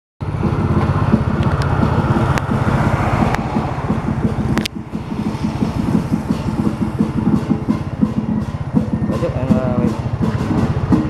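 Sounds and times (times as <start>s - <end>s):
wind noise: 0.2s - 10.9s
vehicle engine throbbing: 0.2s - 11.0s
sharp clicks: 4.6s - 4.8s.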